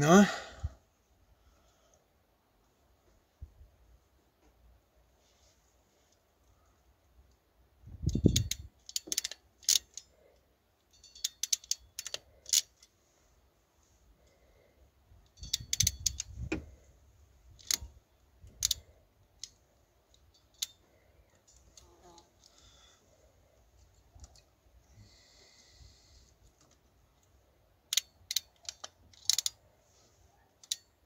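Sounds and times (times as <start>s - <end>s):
crimping tool clicking: 27.9s - 29.6s.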